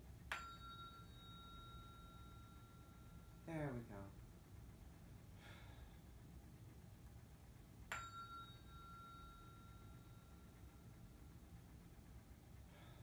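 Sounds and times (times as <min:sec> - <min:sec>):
tuning fork ringing: 0:00.0 - 0:03.9, 0:07.9 - 0:11.5.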